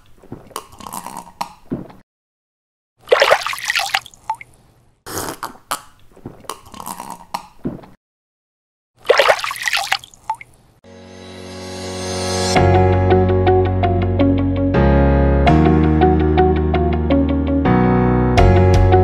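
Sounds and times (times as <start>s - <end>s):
cartoon slurping through straw: 0.3s - 1.4s, 5.1s - 7.4s
music: 10.9s - 19.0s.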